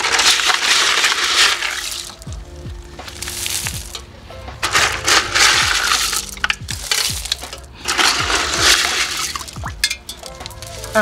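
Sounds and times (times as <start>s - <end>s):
gravel crunching and rattling: 0.0s - 11.0s.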